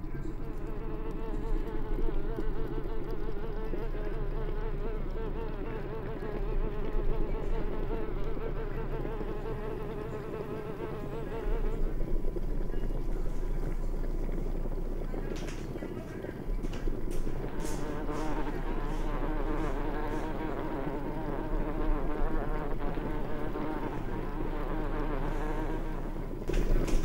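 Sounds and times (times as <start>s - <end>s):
fly buzzing: 0.6s - 12.4s, 16.7s - 27.0s.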